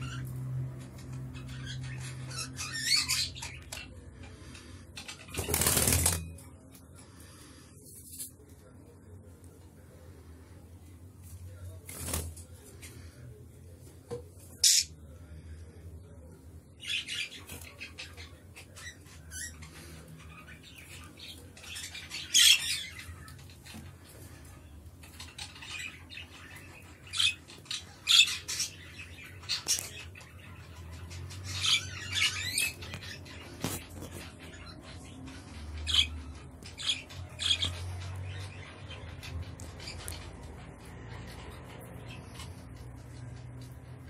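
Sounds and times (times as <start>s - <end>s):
budgerigars chirping and squawking: 0.0s - 6.3s, 14.5s - 15.7s, 16.7s - 43.9s.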